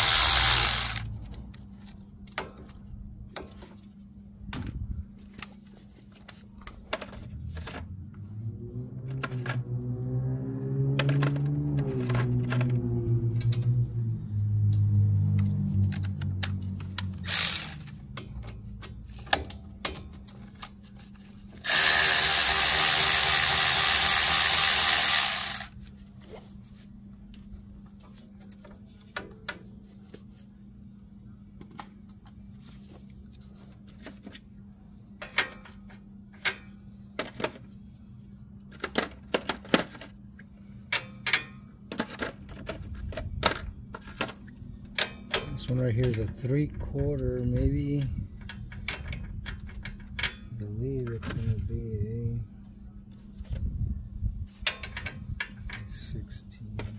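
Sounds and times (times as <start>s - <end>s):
power tool loosening bolt: 0.0s - 1.1s, 17.0s - 18.0s, 21.6s - 25.7s.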